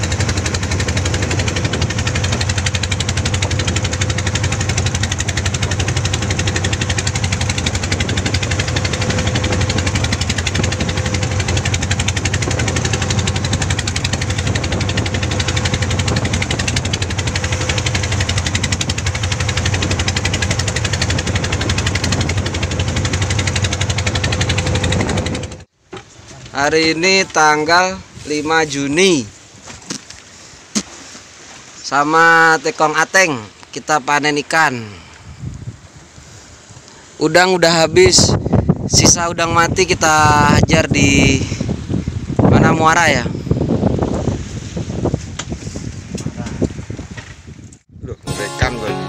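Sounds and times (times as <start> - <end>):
boat engine knocking: 0.0 - 28.1.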